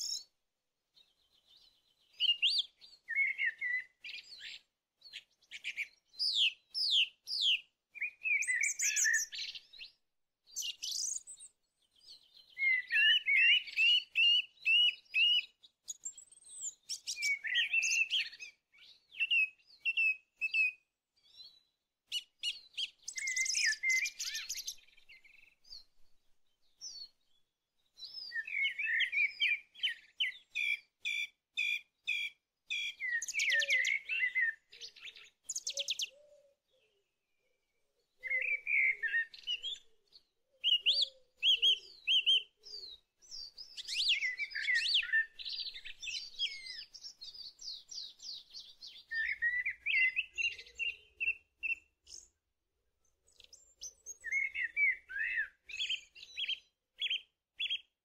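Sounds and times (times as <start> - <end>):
birds chirping and trilling: 1.0 - 52.4, 53.0 - 57.9
lower bird call: 40.6 - 52.3.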